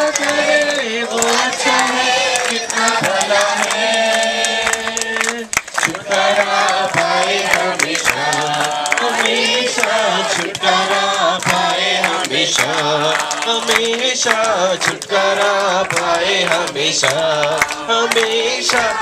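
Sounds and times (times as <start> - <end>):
congregation singing: 0.0 - 19.0
hands clapping: 0.0 - 19.0.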